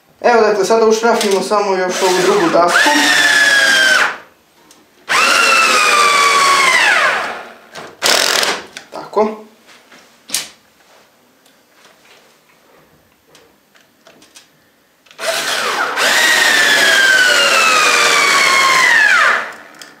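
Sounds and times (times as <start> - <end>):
cordless drill whining: 1.9 - 4.2, 5.1 - 8.5, 15.2 - 19.8.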